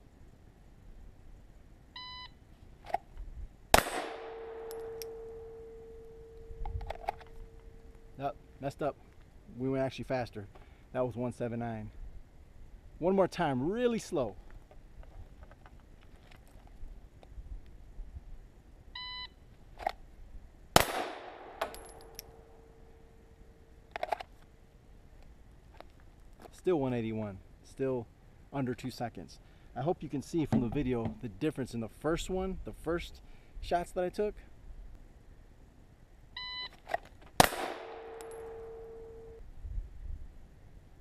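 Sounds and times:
pistol shot: 3.7 - 5.8, 20.8 - 22.4, 37.4 - 39.1
steel target ringing: 3.8 - 6.6, 37.4 - 39.4.

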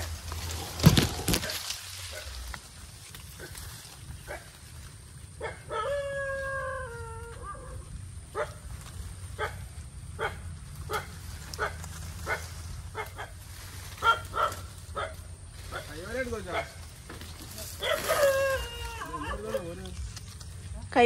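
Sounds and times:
dog barking: 5.4 - 5.9, 8.4 - 8.6, 9.4 - 9.6, 10.2 - 13.3, 14.0 - 15.2
dog howling: 5.4 - 7.9, 17.8 - 19.8.

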